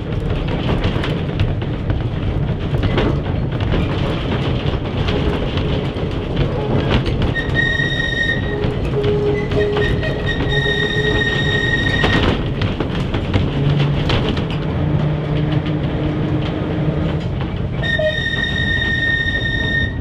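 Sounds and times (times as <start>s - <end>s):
tram wheels rumbling on track: 0.0s - 20.0s
high-pitched wheel squeal: 7.3s - 12.4s, 17.8s - 20.0s.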